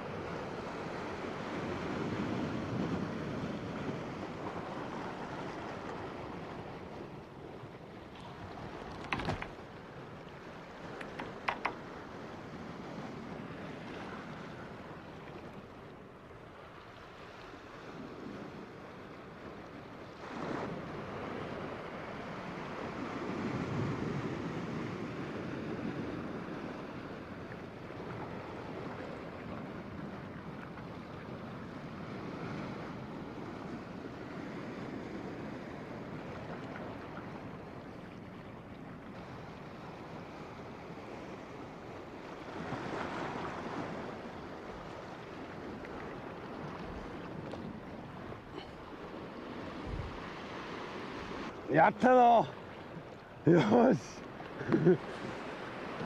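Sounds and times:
sea waves washing over rocks: 0:39.2 - 0:56.0.

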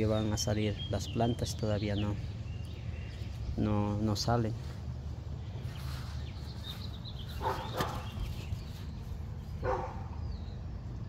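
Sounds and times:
low outdoor rumble: 0:00.0 - 0:11.0
dog barking: 0:07.4 - 0:08.1, 0:09.6 - 0:10.2.

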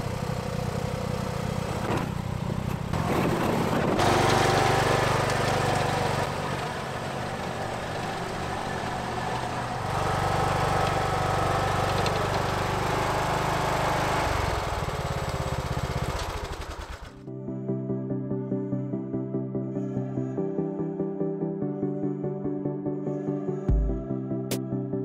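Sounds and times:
lawn tractor engine running: 0:00.0 - 0:17.3
plow blade pushing snow: 0:00.0 - 0:17.3
soft music: 0:17.3 - 0:25.0.

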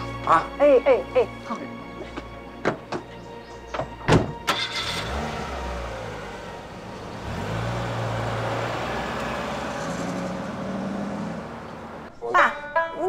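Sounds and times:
car door shutting: 0:03.7 - 0:05.1
car engine running: 0:04.3 - 0:12.1.

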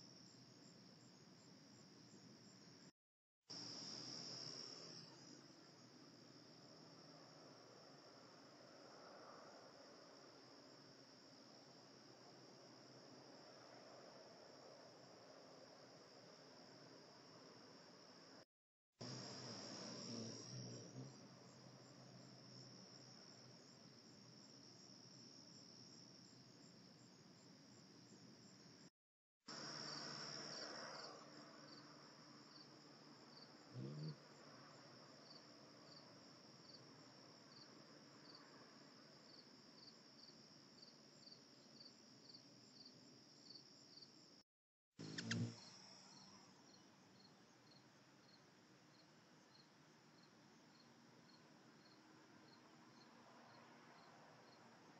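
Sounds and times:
crickets chirping: 0:00.0 - 0:02.9, 0:03.5 - 0:18.4, 0:19.0 - 0:28.9, 0:29.5 - 0:44.4, 0:45.0 - 0:54.9
brief low hum: 0:45.0 - 0:45.6.

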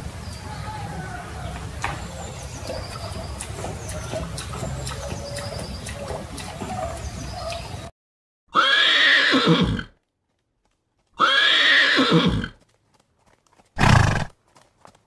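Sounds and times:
horse whinnying: 0:08.5 - 0:09.9, 0:11.2 - 0:12.6, 0:13.8 - 0:14.3.

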